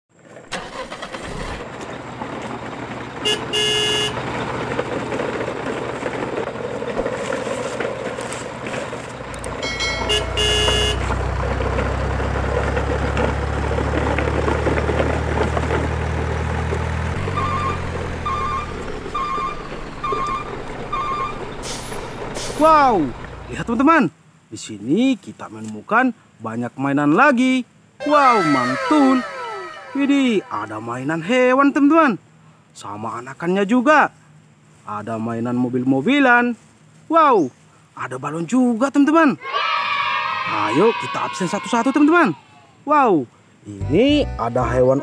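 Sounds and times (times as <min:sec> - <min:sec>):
truck engine rumbling: 0:00.1 - 0:24.5, 0:43.7 - 0:45.0
horn toots: 0:03.2 - 0:04.2, 0:09.6 - 0:11.2, 0:28.0 - 0:30.8.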